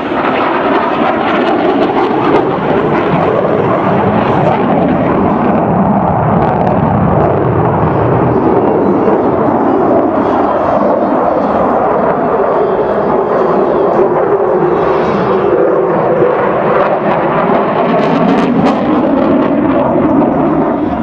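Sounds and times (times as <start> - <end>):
loud jet engine noise: 0.0 - 21.0.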